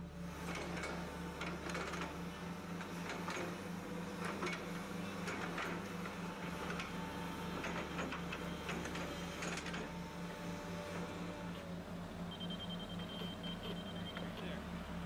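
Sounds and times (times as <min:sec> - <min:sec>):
faint steady high tone: 0:12.3 - 0:14.6.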